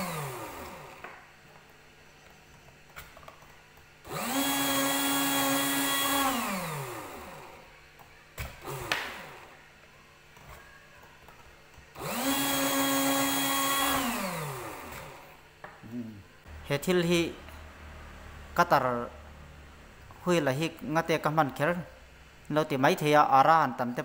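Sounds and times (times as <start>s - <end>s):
electric drill motor spinning: 0.0s - 15.6s.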